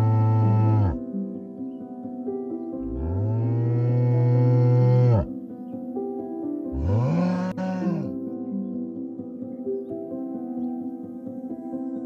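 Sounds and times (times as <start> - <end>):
calf mooing: 0.0 - 1.0, 2.8 - 5.3, 6.7 - 8.2
soft music with held tones: 0.0 - 12.0.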